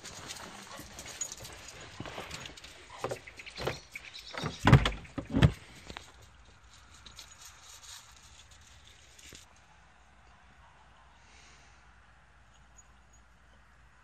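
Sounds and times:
paws crunching on gravel: 0.0 - 9.5
loud thumps: 4.4 - 5.6.

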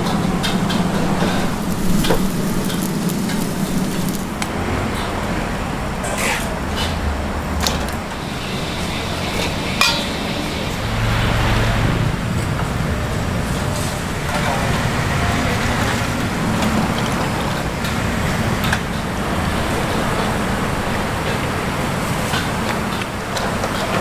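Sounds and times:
steady traffic noise: 0.0 - 24.0
vehicle low hum: 0.0 - 24.0
metal cooking utensils clinking: 9.4 - 10.5.

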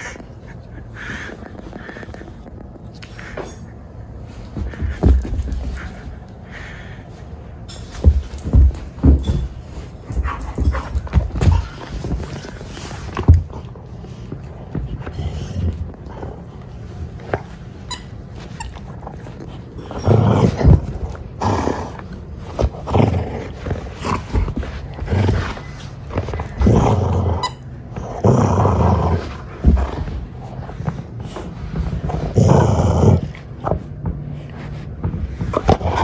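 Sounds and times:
dog growling: 19.0 - 31.2, 32.0 - 33.9, 35.4 - 36.0.

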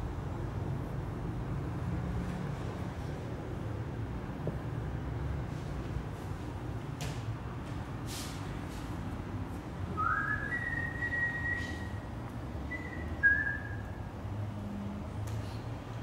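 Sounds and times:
person whistling: 10.0 - 12.1, 12.7 - 13.9.

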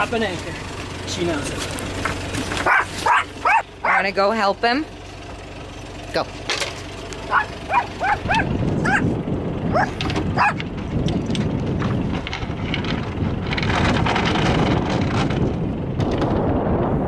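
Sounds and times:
small dog yelping and whining: 2.6 - 4.1, 7.3 - 9.1, 9.7 - 10.6.

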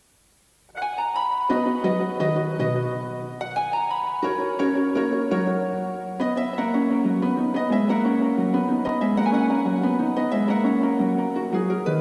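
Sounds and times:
instrumental background music: 0.7 - 12.0.

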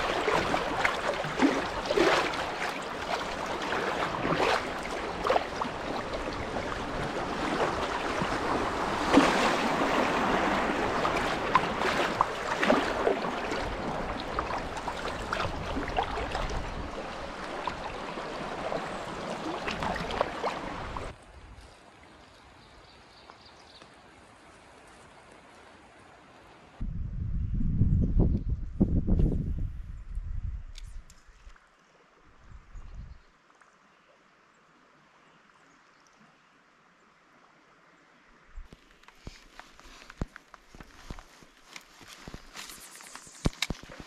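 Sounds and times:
river water rushing: 0.0 - 21.2
paddle splashes: 0.0 - 22.2, 38.6 - 44.0.

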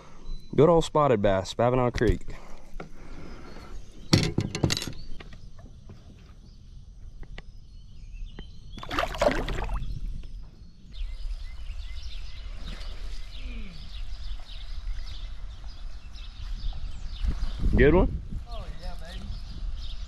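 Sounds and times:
water splash: 8.8 - 9.9.

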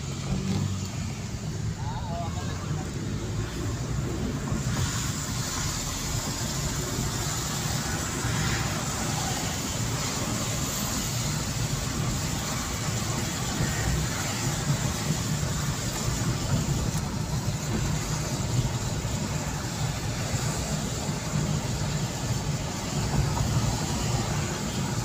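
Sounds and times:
engine and tyres rumbling: 0.0 - 25.0
tyres hissing on wet road: 0.0 - 25.0.

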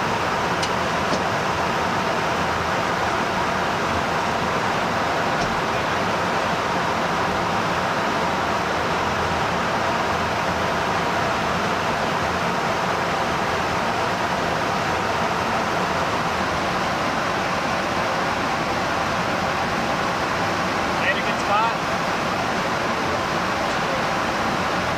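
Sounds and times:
aircraft airflow and engines rushing: 0.0 - 24.9.

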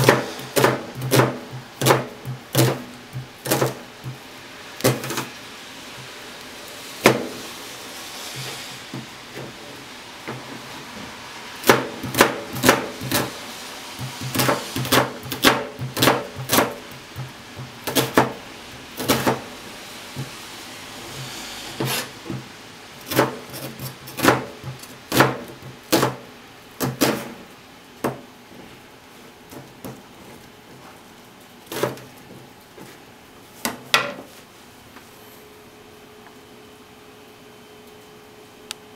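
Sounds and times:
knife cutting onion on board: 0.0 - 4.2, 4.8 - 6.1, 11.6 - 13.4, 14.0 - 19.6, 21.1 - 27.4, 31.7 - 32.1.

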